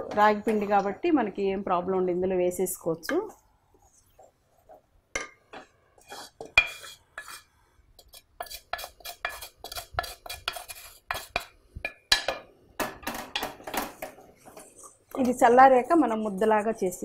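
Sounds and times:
wooden spatula scraping a pot: 2.7 - 4.9, 5.6 - 11.6, 13.3 - 17.0.

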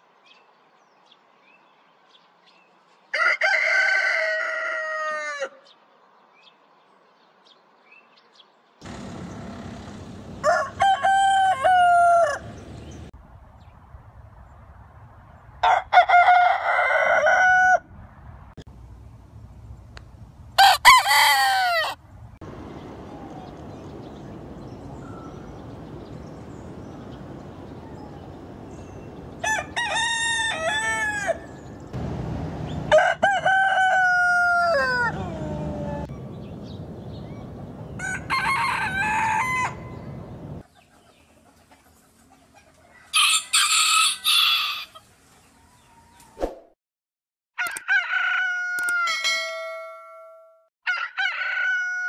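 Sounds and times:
quiet outdoor background: 0.0 - 46.8
roosters crowing: 3.1 - 5.7, 8.8 - 13.1, 15.6 - 17.9, 20.6 - 40.6, 43.0 - 46.4, 47.6 - 49.8, 50.8 - 52.0.

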